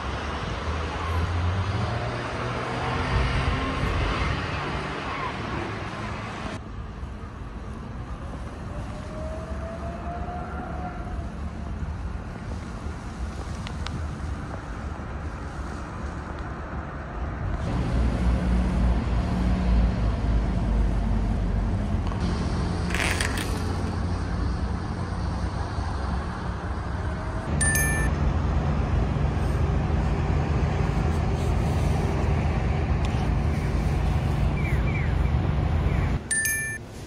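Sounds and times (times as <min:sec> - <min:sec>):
road rumble: 0:00.0 - 0:37.0
brief high beep: 0:27.6 - 0:28.1, 0:36.3 - 0:36.8.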